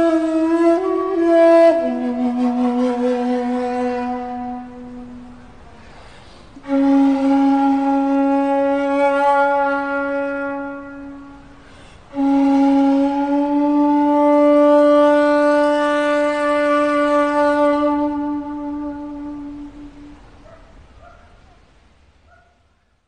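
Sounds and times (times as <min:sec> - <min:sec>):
bamboo flute long notes: 0:00.0 - 0:20.4
breath: 0:05.8 - 0:06.6, 0:11.6 - 0:12.1.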